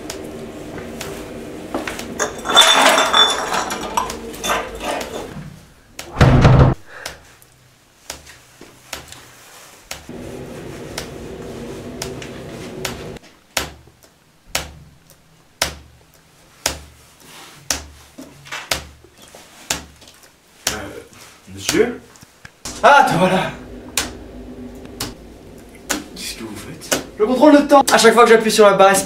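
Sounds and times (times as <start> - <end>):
steady hum: 0.0 - 6.8, 9.9 - 13.2, 22.5 - 29.0
loud thump: 6.2 - 6.8.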